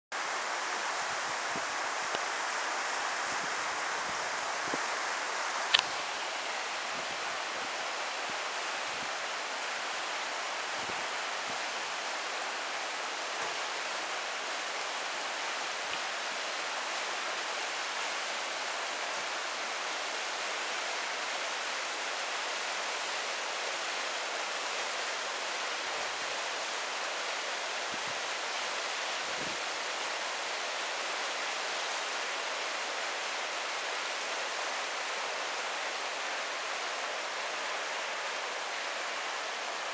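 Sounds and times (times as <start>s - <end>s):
river rushing over stones: 0.2s - 39.9s.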